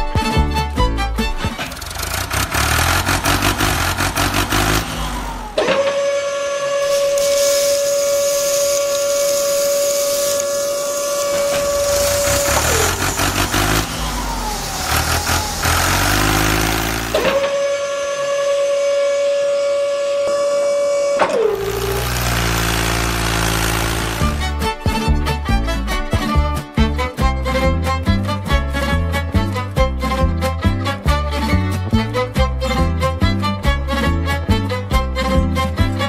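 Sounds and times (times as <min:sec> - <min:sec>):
small electric motor whirring: 0:01.6 - 0:17.5, 0:21.4 - 0:24.5.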